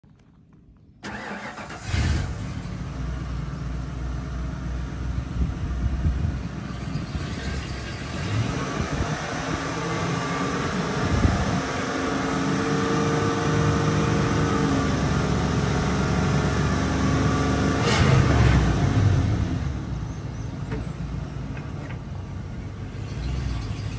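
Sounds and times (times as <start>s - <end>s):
pickup engine revving: 5.3s - 19.8s.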